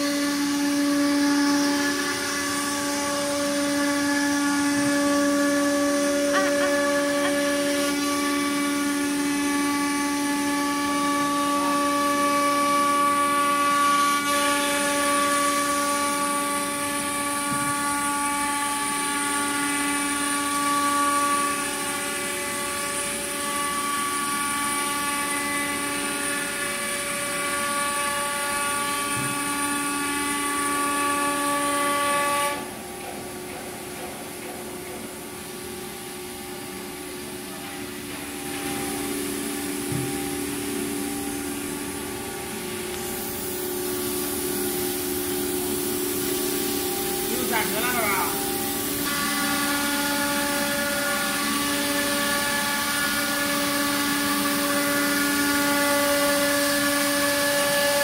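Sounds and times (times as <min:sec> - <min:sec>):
router spindle whining: 0:00.0 - 0:10.8.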